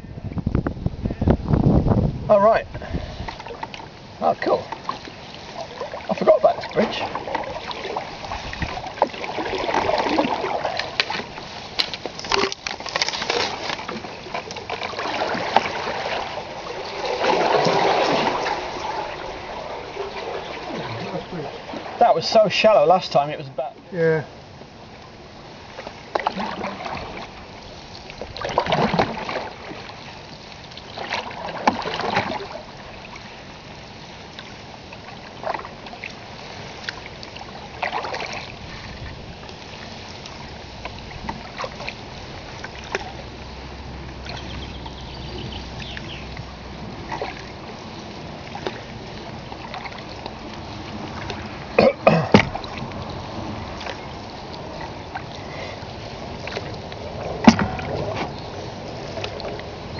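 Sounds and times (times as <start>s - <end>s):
paddles splashing in water: 2.4s - 59.9s
background hiss: 15.9s - 26.3s
sharp knocks: 52.3s - 52.6s.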